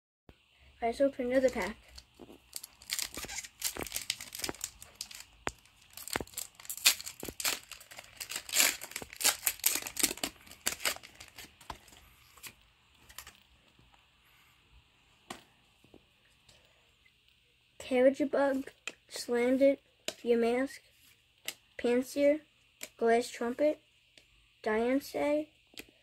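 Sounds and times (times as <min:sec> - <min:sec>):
foil wrapper tearing and crinkling: 0:01.5 - 0:13.4.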